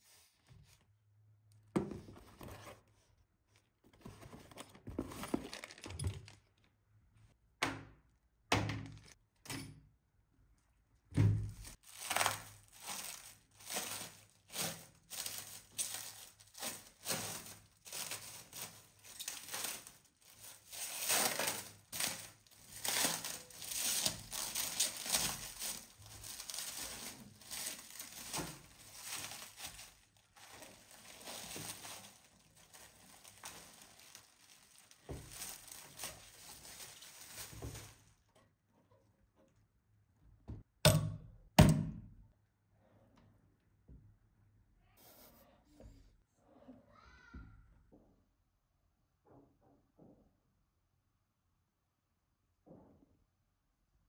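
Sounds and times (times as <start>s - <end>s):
crinkling and tearing: 11.6s - 38.2s.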